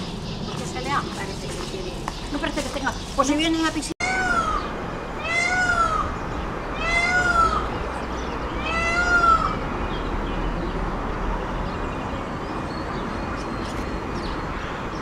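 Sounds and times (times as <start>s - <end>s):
cat meowing: 5.2s - 6.1s, 6.7s - 7.7s, 8.5s - 9.6s.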